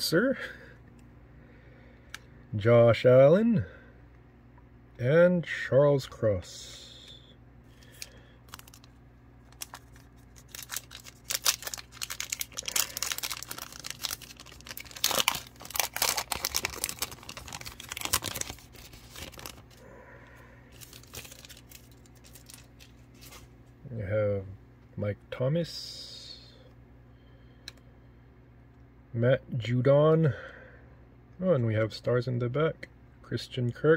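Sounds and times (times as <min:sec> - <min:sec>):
foil wrapper crinkling and tearing: 0:07.8 - 0:19.8, 0:20.7 - 0:23.5
wrapper rustling: 0:07.8 - 0:19.8, 0:20.7 - 0:23.5.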